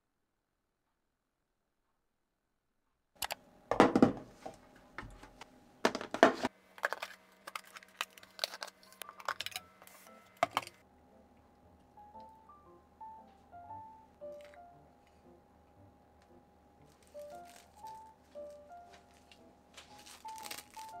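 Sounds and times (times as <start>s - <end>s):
kitchen items clattering: 3.7s - 10.8s.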